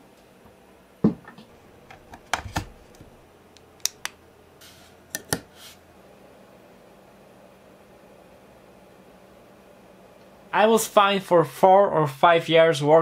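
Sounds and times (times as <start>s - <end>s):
sharp clicks and taps: 1.9s - 4.2s.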